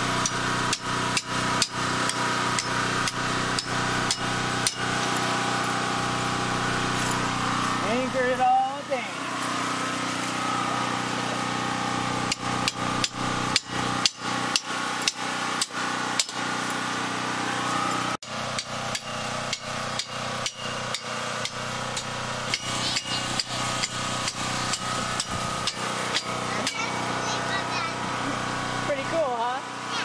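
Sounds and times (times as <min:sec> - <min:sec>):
steady hum: 0:00.0 - 0:30.0
hammer striking metal stake: 0:18.6 - 0:26.9.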